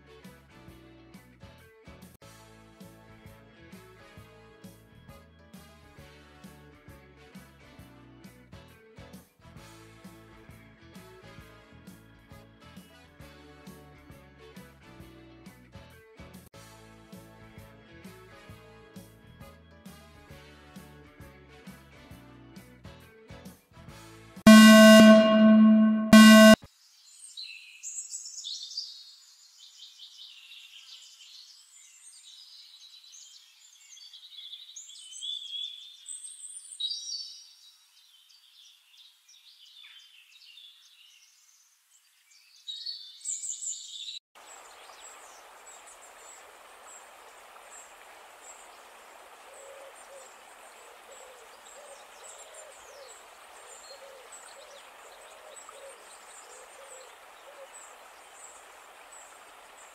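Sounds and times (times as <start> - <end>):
faint high notes: 24.5 - 26.6.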